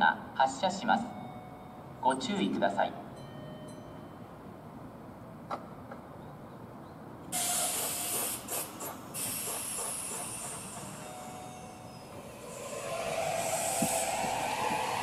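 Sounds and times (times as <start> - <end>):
compressed air hissing: 7.4 - 11.0, 11.9 - 15.0.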